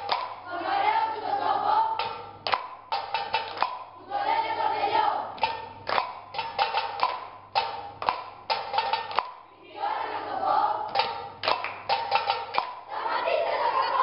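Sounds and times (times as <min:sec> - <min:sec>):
sharp percussive knocks: 0:00.0 - 0:00.5, 0:02.0 - 0:04.0, 0:05.3 - 0:09.5, 0:10.9 - 0:12.9
children's choir singing: 0:00.0 - 0:02.4, 0:03.1 - 0:05.6, 0:09.4 - 0:14.0.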